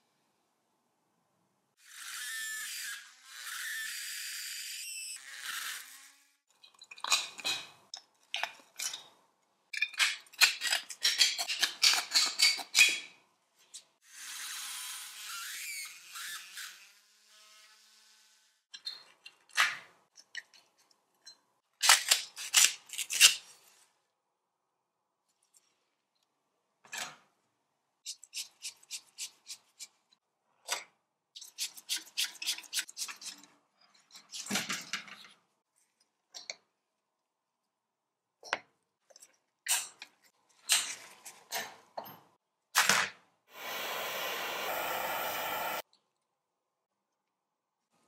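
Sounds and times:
handheld tool hissing: 43.5 - 45.8.

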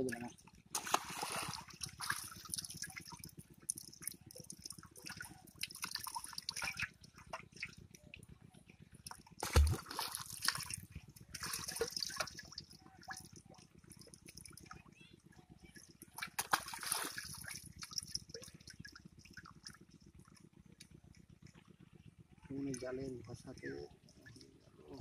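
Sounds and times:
small water splashes: 0.0 - 8.2, 9.0 - 15.0, 15.7 - 19.8
water dripping and trickling: 0.0 - 8.3, 9.0 - 14.9, 15.7 - 20.9.

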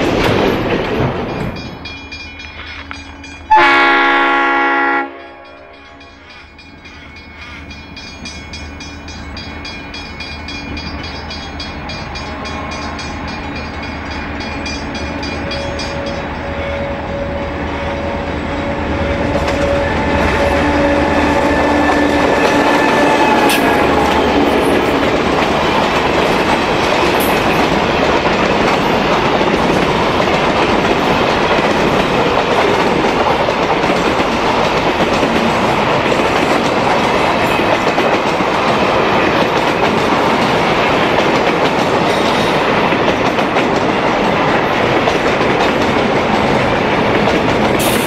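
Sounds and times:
locomotive engine: 0.0 - 41.8
level crossing warning bell: 1.0 - 27.7
locomotive horn blast: 3.5 - 5.5, 17.6 - 24.8.

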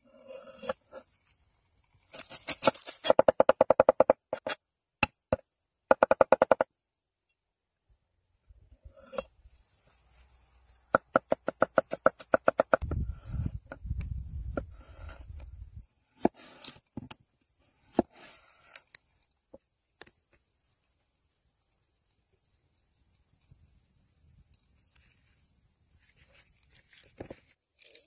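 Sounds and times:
blade slicing through potato: 16.1 - 16.8.

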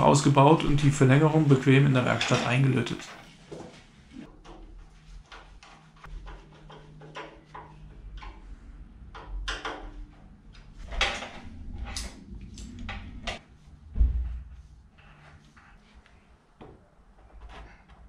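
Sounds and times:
heavy thump: 13.9 - 14.6.

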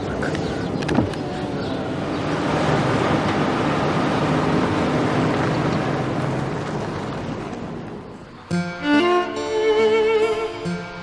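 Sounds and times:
car engine and tyre rumble: 0.0 - 8.5.

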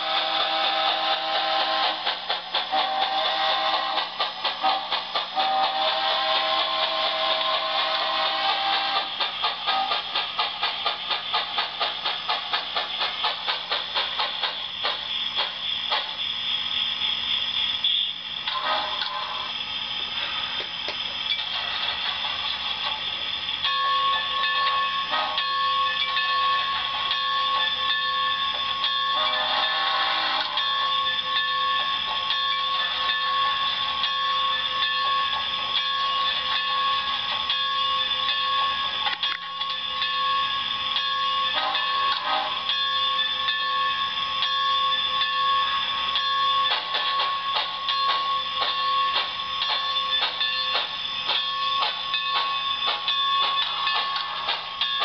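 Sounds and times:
steam exhaust chuffs through speaker: 0.0 - 14.6
model steam locomotive sounds: 0.0 - 55.0
steady steam hiss: 0.0 - 55.0
held ringing tones: 15.1 - 55.0.

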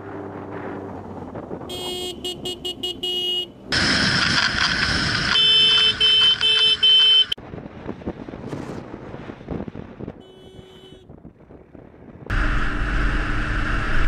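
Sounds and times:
motorcycle engine and wind noise: 0.0 - 2.1, 3.8 - 14.0
vehicle horn blasts: 1.7 - 3.5, 5.3 - 7.4, 10.2 - 11.1.

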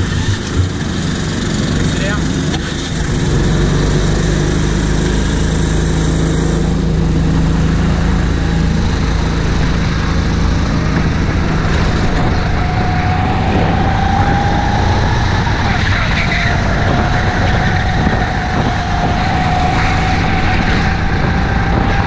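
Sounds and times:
go-kart engine running: 0.0 - 22.0.

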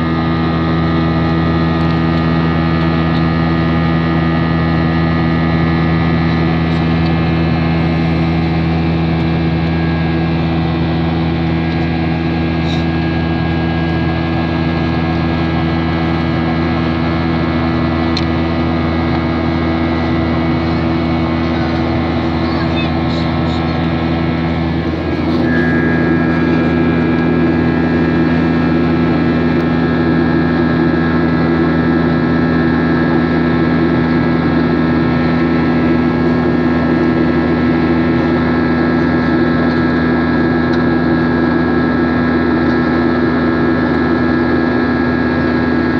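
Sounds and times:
aircraft engine drone: 0.0 - 45.9
steady humming tones: 0.0 - 45.9.

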